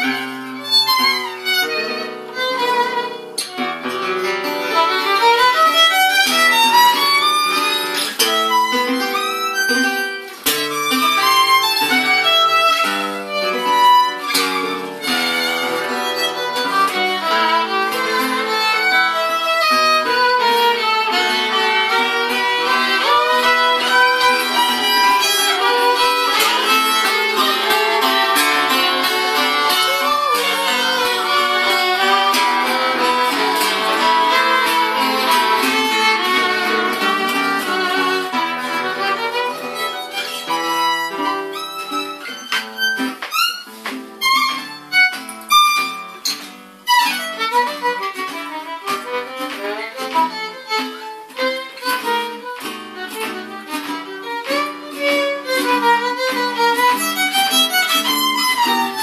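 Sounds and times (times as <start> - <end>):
jazz guitar playing: 0.0 - 59.0
violin improvising: 0.0 - 59.0.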